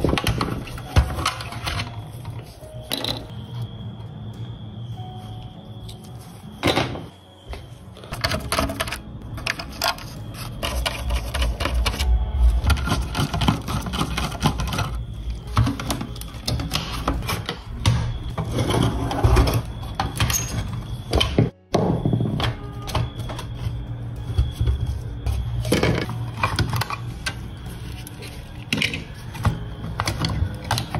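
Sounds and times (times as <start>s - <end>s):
metal and plastic parts clattering: 0.0s - 3.3s, 8.1s - 23.8s, 25.6s - 30.9s.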